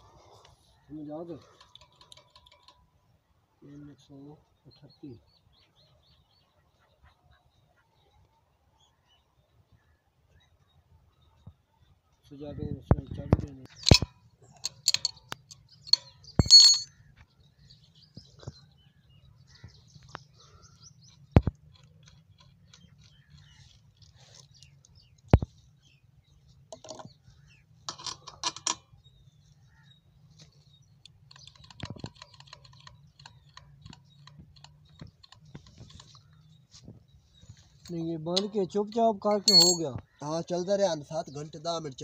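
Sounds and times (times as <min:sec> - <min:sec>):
light metal clinks: 0:01.3 - 0:03.0, 0:13.7 - 0:16.9, 0:37.8 - 0:40.0.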